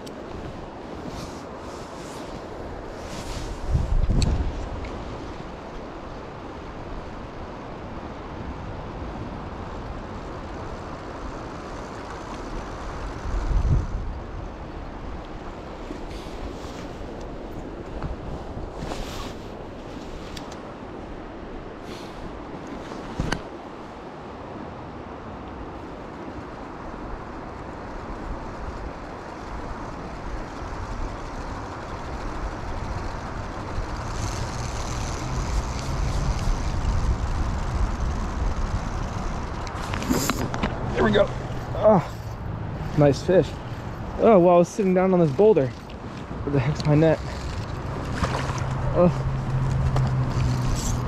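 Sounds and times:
wind buffeting microphone: 0:00.0 - 0:20.2, 0:26.4 - 0:51.0
creek rushing: 0:14.3 - 0:51.0.

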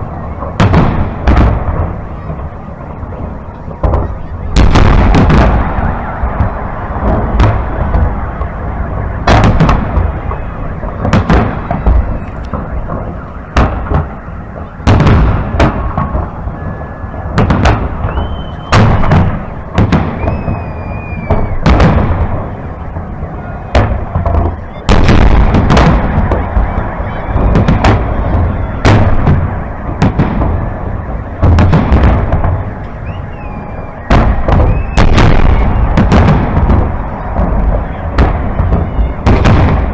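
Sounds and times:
fireworks bangs: 0:00.0 - 0:39.9
low rolling rumble: 0:00.0 - 0:39.9
faint whistles: 0:11.7 - 0:13.4, 0:16.3 - 0:21.7, 0:24.4 - 0:25.0, 0:32.7 - 0:36.0, 0:37.1 - 0:39.2.

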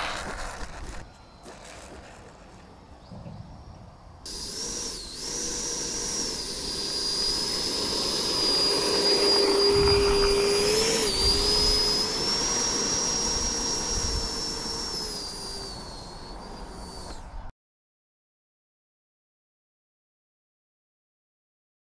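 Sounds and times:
electric fan high whine: 0:00.0 - 0:17.5.

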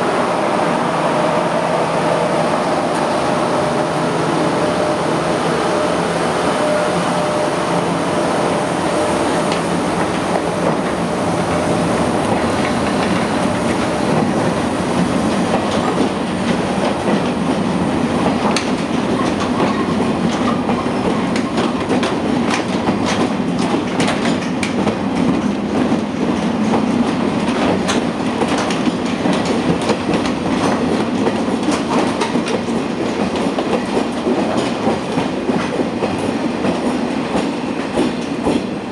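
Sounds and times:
freight train rumble: 0:00.0 - 0:38.9
wheels clacking over rail joints: 0:09.0 - 0:38.8.

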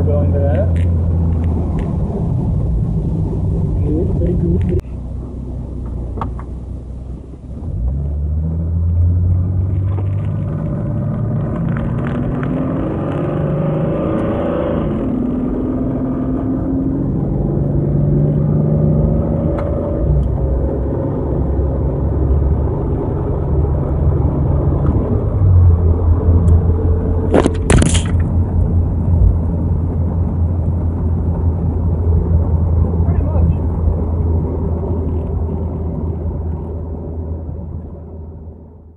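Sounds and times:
car engine running: 0:00.0 - 0:12.9.

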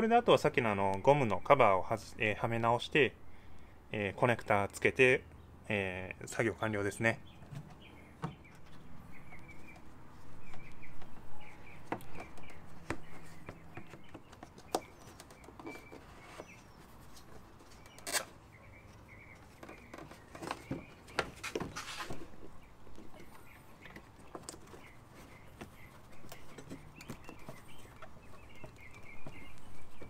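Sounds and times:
small bird chirping: 0:07.1 - 0:30.0.

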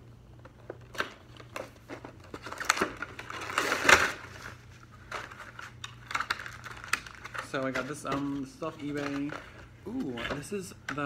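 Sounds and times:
plastic tray crinkling: 0:00.8 - 0:11.0.

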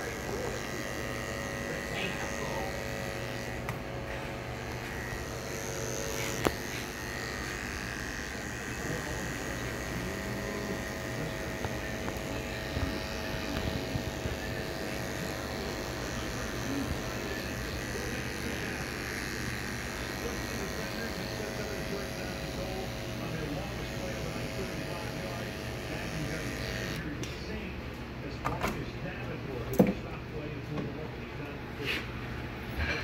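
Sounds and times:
electric hair clippers buzzing: 0:00.0 - 0:27.1.

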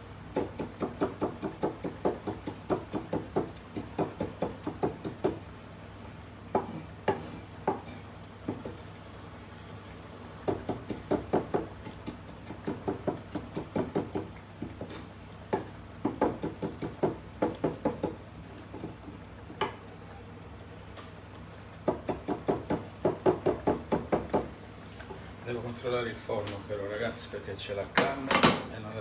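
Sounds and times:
knife chopping on wooden board: 0:00.3 - 0:05.4, 0:06.5 - 0:08.8, 0:10.4 - 0:19.8, 0:21.8 - 0:24.5.

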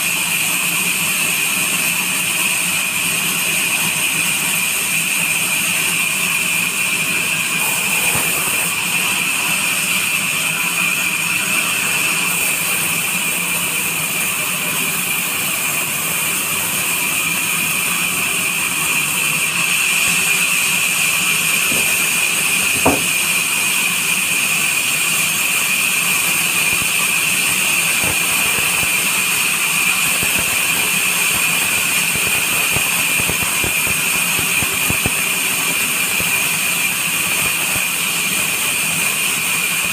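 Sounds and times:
band saw ripping log: 0:07.5 - 0:09.4, 0:19.8 - 0:38.4
sharp knock: 0:21.7 - 0:23.2.

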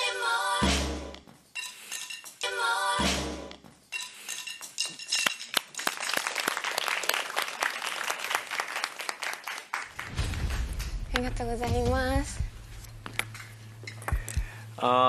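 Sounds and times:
group applauding: 0:05.3 - 0:10.9
low rumble: 0:10.0 - 0:14.6.

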